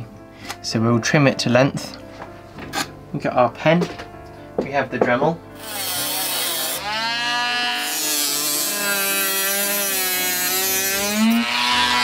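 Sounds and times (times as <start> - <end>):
rotary tool cutting disc whine: 5.6 - 12.0.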